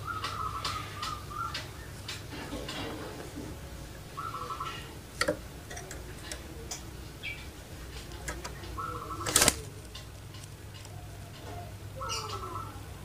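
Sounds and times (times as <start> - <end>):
dove calls: 0.0 - 13.0
scattered clicks: 8.0 - 11.0.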